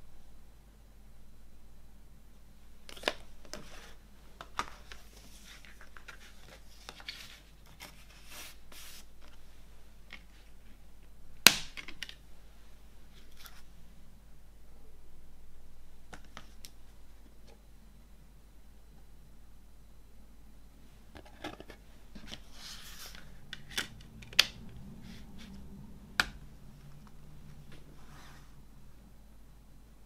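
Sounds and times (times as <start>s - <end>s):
card and paper rustling: 2.9s - 9.4s, 21.2s - 24.3s.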